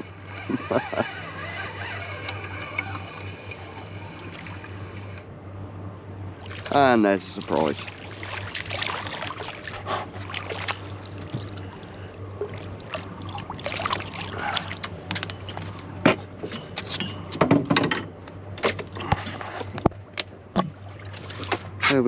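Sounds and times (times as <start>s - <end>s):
water lapping against boat hull: 0.0s - 5.3s, 6.4s - 17.6s, 18.2s - 22.0s
knocks and clatters on deck: 17.4s - 18.8s.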